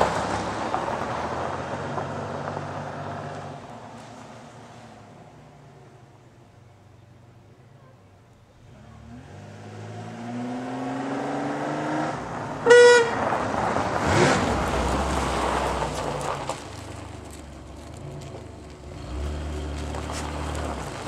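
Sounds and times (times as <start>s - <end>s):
tyres skidding on gravel: 0.0s - 5.0s, 12.2s - 21.0s
car engine revving: 8.6s - 21.0s
car horn honk: 12.6s - 13.2s.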